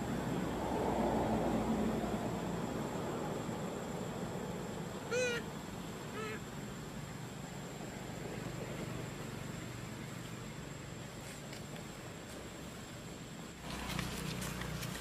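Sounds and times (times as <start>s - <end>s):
forest background noise: 0.0s - 15.0s
macaque high-pitched cries: 5.1s - 5.5s, 6.1s - 6.4s.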